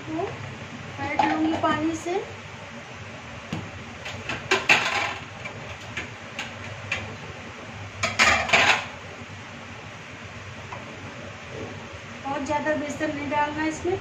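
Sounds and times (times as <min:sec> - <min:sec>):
steel plates and lids clattering: 0:08.0 - 0:08.9.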